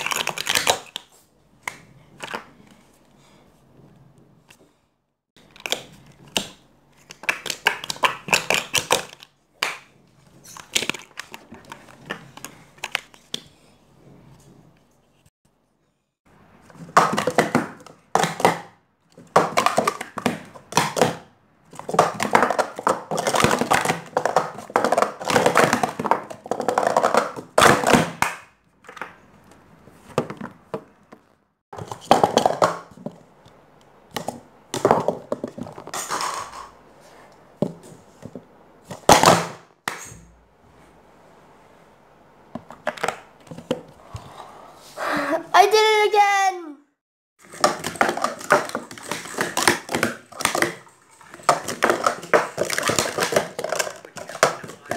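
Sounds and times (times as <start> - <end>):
plastic cups clattering: 16.6 - 29.2, 30.0 - 33.2, 34.1 - 36.8, 47.4 - 54.9.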